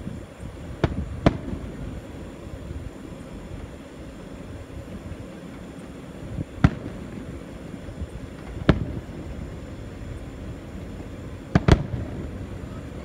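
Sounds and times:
firework booms: 0.0s - 2.3s, 6.3s - 9.7s, 10.7s - 13.0s
low background noise: 0.0s - 13.0s.

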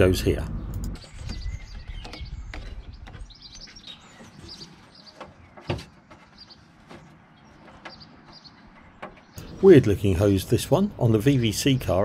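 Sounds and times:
small birds chirping: 0.0s - 12.0s
hose knocking and rubbing: 1.0s - 9.4s.

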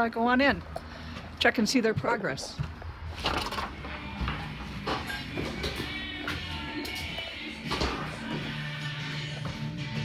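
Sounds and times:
background music with held notes: 3.7s - 10.0s.

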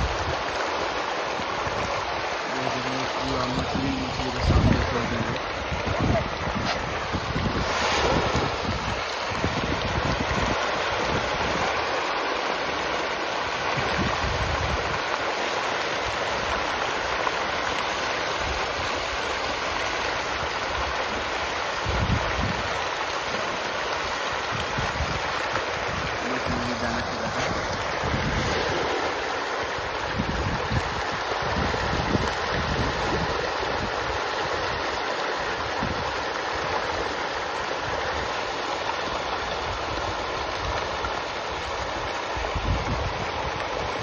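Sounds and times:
fish splashing at the surface: 0.0s - 44.0s
wind buffeting the microphone: 3.4s - 11.7s, 13.8s - 15.0s, 21.8s - 22.8s, 24.5s - 34.2s, 42.4s - 44.0s.

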